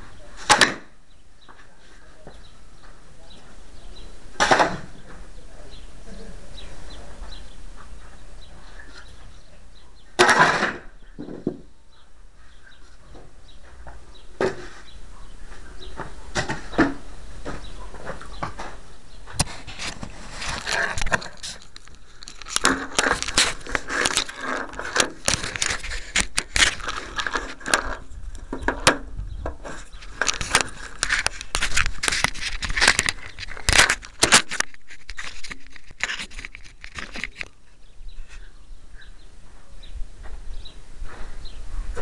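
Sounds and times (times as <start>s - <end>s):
camera handling rustling: 19.4s - 28.0s, 29.7s - 37.6s.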